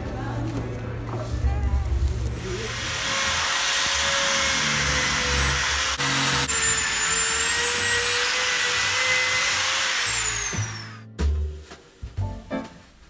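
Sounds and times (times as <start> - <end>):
electric drill whining: 2.4 - 11.0.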